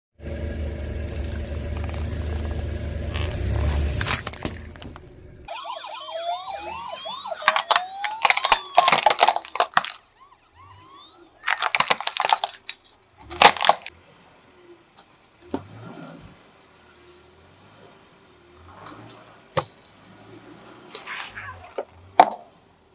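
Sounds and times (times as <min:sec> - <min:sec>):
plastic bottle crackling: 0:01.1 - 0:05.0, 0:07.4 - 0:10.0, 0:11.4 - 0:13.9
plastic toys cracking under tyre: 0:01.1 - 0:05.1, 0:07.3 - 0:10.1, 0:11.4 - 0:13.9, 0:18.8 - 0:22.7
toy police siren wailing: 0:05.5 - 0:12.7.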